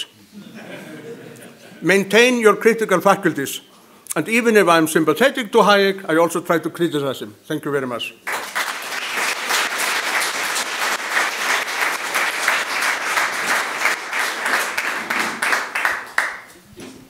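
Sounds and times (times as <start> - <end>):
audience applauding: 8.2 - 16.6.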